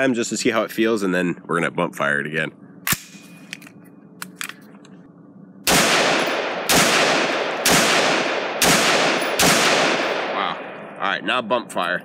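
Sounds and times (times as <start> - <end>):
rifle shots echoing: 5.6 - 11.0.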